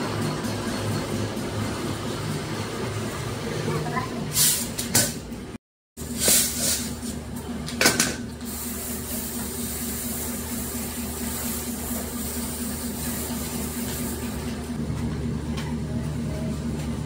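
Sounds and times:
steady machine hum: 5.3 - 17.0.

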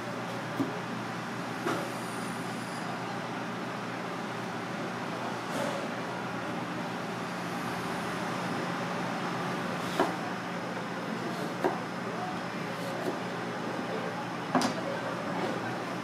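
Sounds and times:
knife chopping on cutting board: 9.9 - 10.2.

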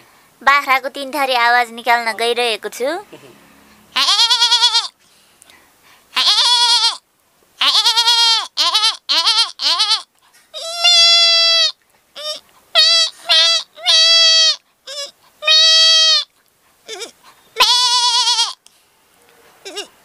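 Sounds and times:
person imitating goat bleats: 3.1 - 4.9, 6.1 - 7.0, 7.6 - 16.3, 16.9 - 18.6, 19.6 - 20.0.

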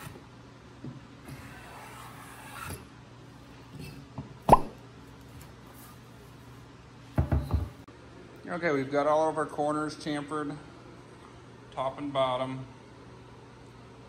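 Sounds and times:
cutting board knocking on wood: 7.2 - 7.7.

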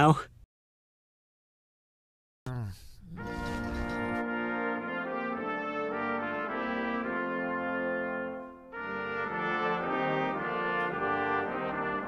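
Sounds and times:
brass title music: 3.2 - 12.0.

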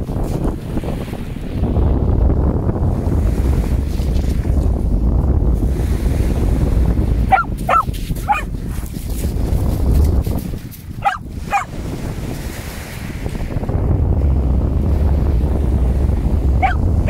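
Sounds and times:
surf: 0.0 - 17.0
wind noise on microphone: 0.0 - 17.0
dog giving short play barks: 7.3 - 8.5, 11.0 - 11.7.

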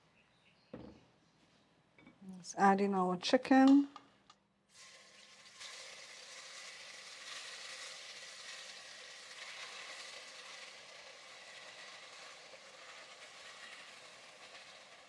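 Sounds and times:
chicken frying in oil: 4.7 - 15.0.

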